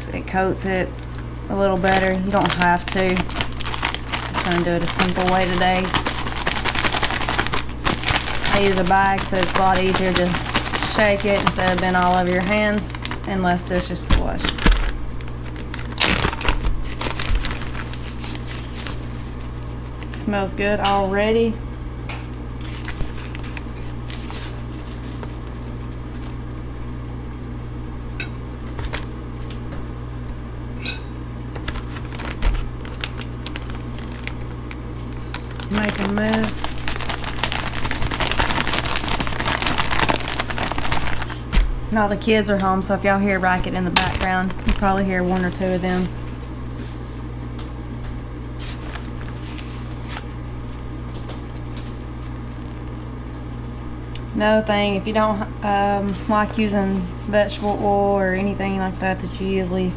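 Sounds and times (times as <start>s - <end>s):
kitchen appliance hum: 0.0s - 59.9s
plastic bag crinkling: 1.5s - 19.5s, 22.6s - 26.4s, 31.5s - 46.4s, 48.6s - 53.0s.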